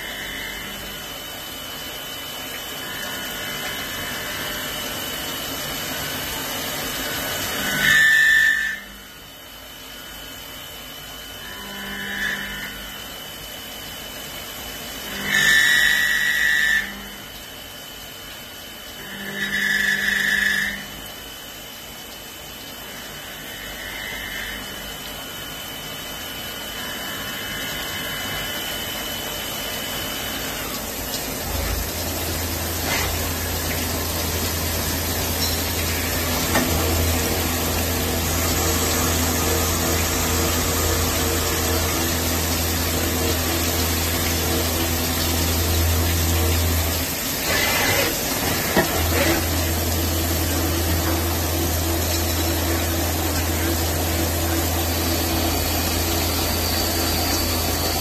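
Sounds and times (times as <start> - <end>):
low machine hum with tones: 0.0 - 58.0
coolant spray hissing: 29.5 - 58.0.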